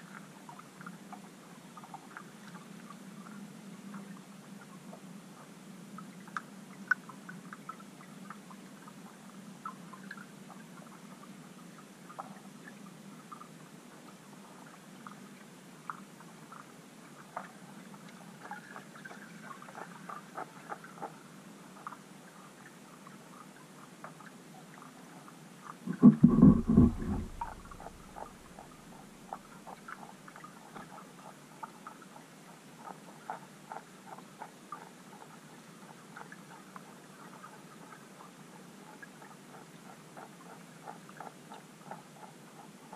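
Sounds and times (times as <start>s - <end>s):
faint underwater clicks and ticks: 0.0s - 42.9s
low underwater hum: 25.8s - 30.9s
loud low thump with rumble: 25.9s - 28.3s.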